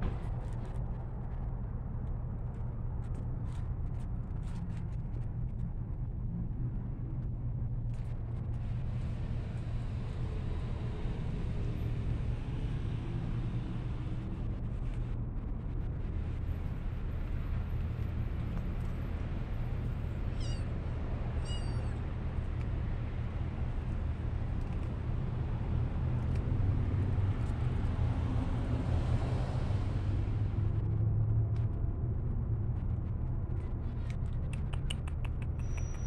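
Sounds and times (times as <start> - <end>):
steady low rumble: 0.0 - 36.0
cat mewing: 20.3 - 20.7, 21.4 - 22.0.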